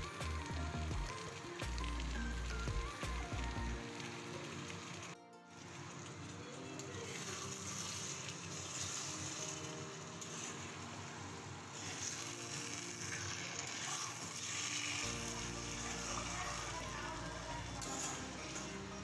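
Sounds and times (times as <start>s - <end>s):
food frying: 0.0s - 19.0s
quiet background music: 0.0s - 19.0s
metal spatula scraping a pan: 7.1s - 10.8s, 11.8s - 17.0s, 17.8s - 19.0s.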